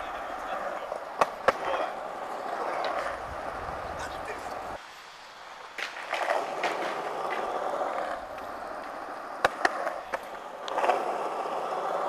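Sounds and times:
skateboard wheels rolling on concrete: 0:00.0 - 0:12.0
foot scraping on concrete: 0:05.6 - 0:12.0.

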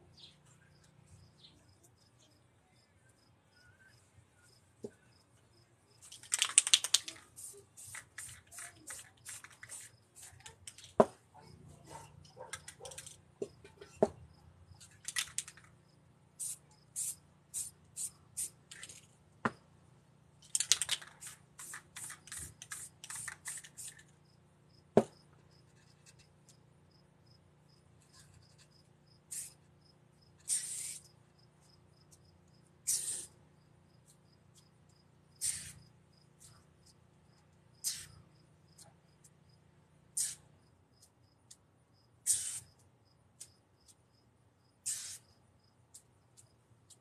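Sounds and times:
spray paint can hissing: 0:06.0 - 0:10.9, 0:16.4 - 0:19.0, 0:20.5 - 0:24.1, 0:29.3 - 0:29.6, 0:30.4 - 0:31.1, 0:32.8 - 0:33.4, 0:35.4 - 0:35.8, 0:37.8 - 0:38.2, 0:40.2 - 0:40.5, 0:42.2 - 0:42.7, 0:44.8 - 0:45.3.

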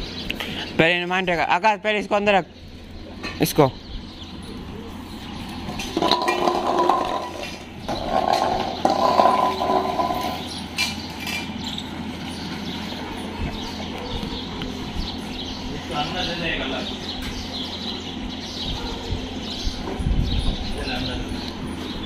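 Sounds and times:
metal dog bowls scraping on tiles: 0:05.6 - 0:12.6.

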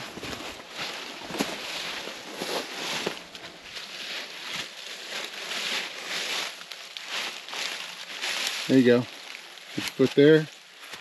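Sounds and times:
footsteps crunching dry leaves: 0:00.0 - 0:11.0.

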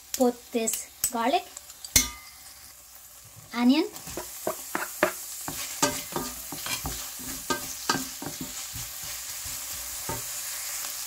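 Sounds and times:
onion and garlic sizzling in oil: 0:00.0 - 0:11.0
utensil scraping a pan: 0:04.0 - 0:10.3.

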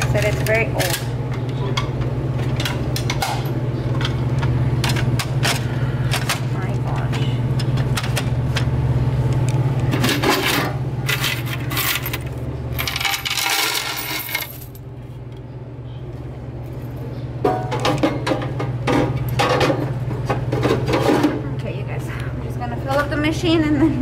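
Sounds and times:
steady low hum: 0:00.0 - 0:24.0
coins clattering in plastic box: 0:10.4 - 0:14.8.

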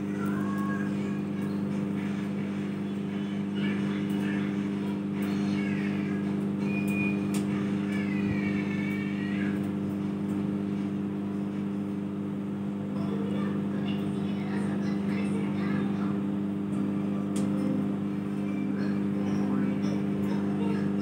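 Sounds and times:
microwave oven humming: 0:00.0 - 0:21.0.

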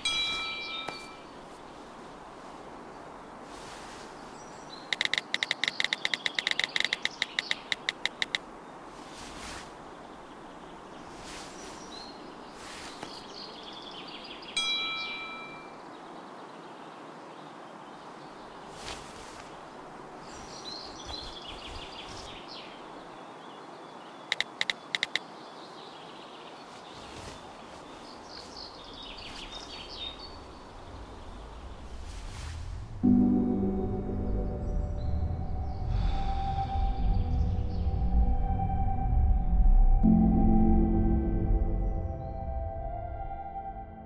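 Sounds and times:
chime-like ring: 0:00.0 - 0:01.2, 0:14.6 - 0:15.8
birds chirping: 0:00.0 - 0:38.3
quick clicks: 0:04.9 - 0:08.4, 0:24.3 - 0:25.2
steady background rush: 0:26.7 - 0:42.6.

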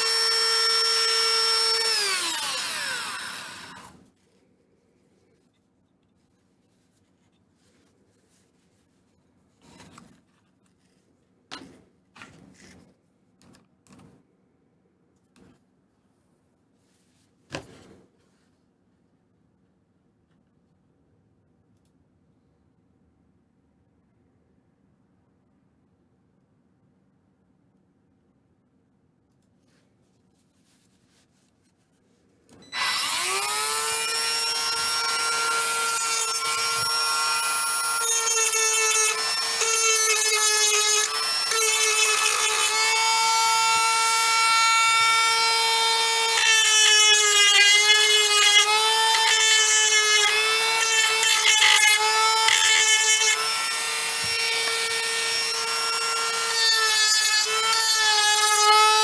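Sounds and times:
rotary tool high whine: 0:00.0 - 0:04.0, 0:32.6 - 0:58.6.

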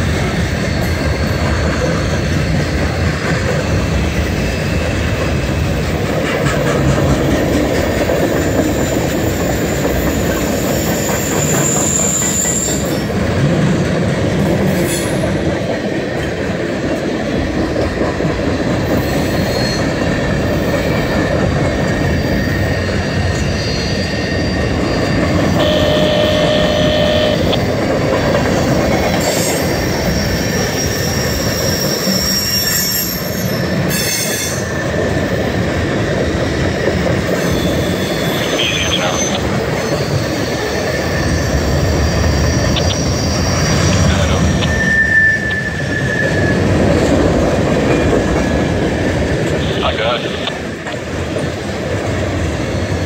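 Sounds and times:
steel wheels rumbling on rail: 0:00.0 - 0:53.0
wheel squeals: 0:08.7 - 0:13.1, 0:29.1 - 0:34.7, 0:39.2 - 0:46.9.

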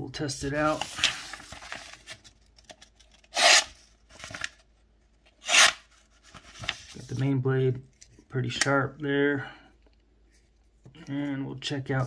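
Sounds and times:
paper rustling: 0:00.4 - 0:03.2, 0:03.8 - 0:04.7, 0:05.9 - 0:07.3.

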